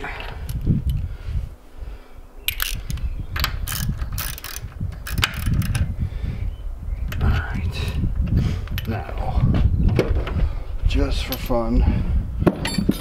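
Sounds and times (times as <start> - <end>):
wind buffeting microphone: 0.0 - 13.0
socket ratchet clicking: 2.5 - 5.9.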